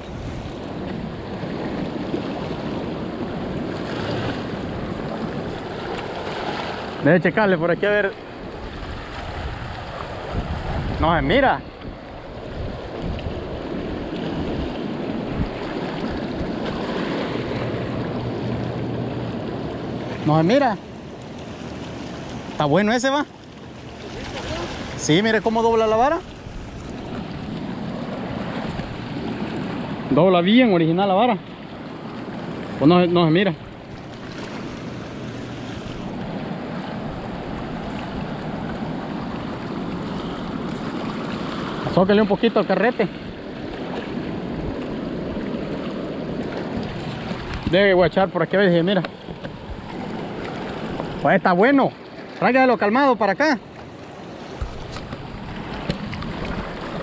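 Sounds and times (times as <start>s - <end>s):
water washing against rocky bank: 0.0s - 7.2s, 7.8s - 30.2s, 32.2s - 53.0s, 53.6s - 57.0s
river water rushing: 0.0s - 57.0s
wind buffeting microphone: 8.1s - 20.4s, 24.1s - 30.2s, 54.3s - 57.0s.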